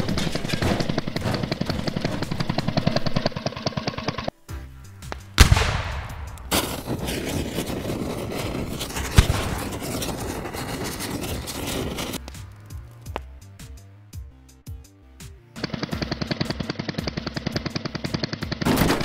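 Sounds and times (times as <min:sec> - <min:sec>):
fast mechanical rattle: 0:00.0 - 0:04.3
light background music: 0:04.3 - 0:08.1, 0:12.0 - 0:19.0
rushing crackling fire: 0:05.0 - 0:13.1.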